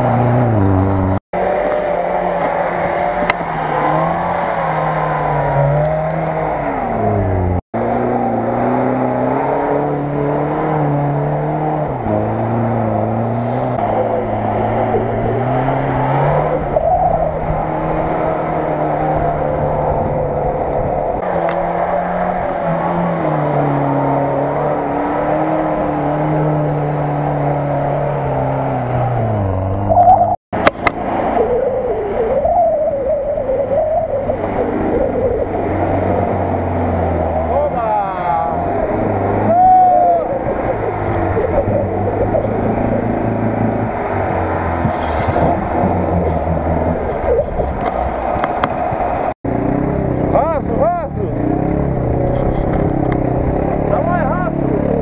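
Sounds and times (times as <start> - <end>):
engine revving hard: 0.0 - 16.7, 49.2 - 55.0.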